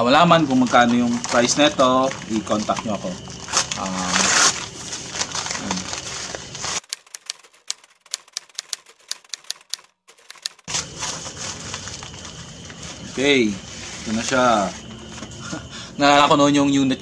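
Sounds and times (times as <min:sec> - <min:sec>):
paper rustling and crackling: 0:00.1 - 0:15.2
paper tearing: 0:03.4 - 0:12.4
rapid irregular clicking: 0:06.6 - 0:10.7.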